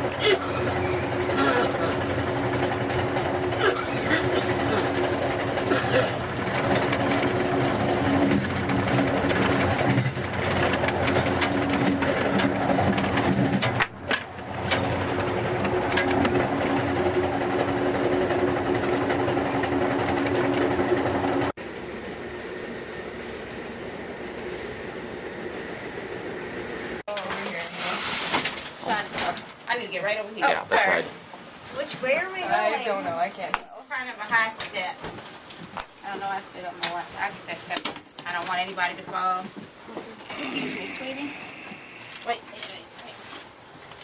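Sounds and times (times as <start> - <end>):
ride noise inside train car: 0.0 - 27.6
passenger train running: 14.1 - 27.0.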